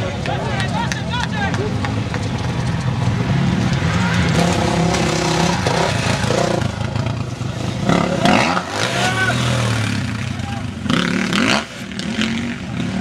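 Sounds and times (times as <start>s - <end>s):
dirt bike engines revving: 0.0s - 13.0s.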